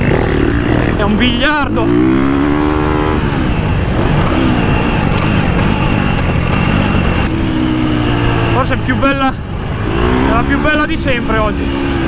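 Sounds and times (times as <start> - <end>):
motocross bike engine: 0.0 - 12.0.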